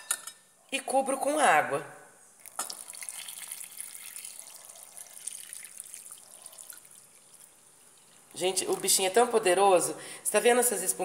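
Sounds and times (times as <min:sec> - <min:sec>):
water pouring into a glass bowl: 0:02.4 - 0:09.2.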